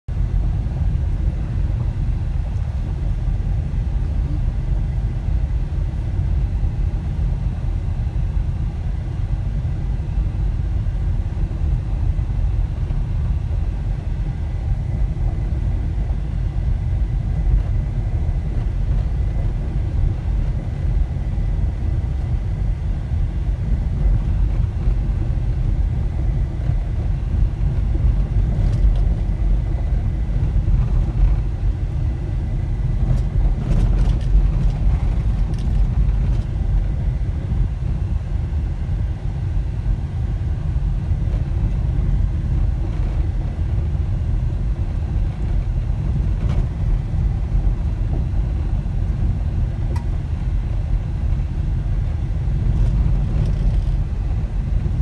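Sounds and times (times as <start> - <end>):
car engine: 10.0 - 55.0
car tyres on gravel road: 23.2 - 38.0.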